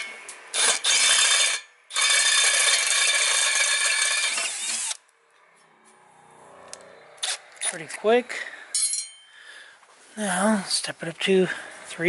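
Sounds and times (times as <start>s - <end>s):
electric drill drilling steel: 0.5s - 5.0s.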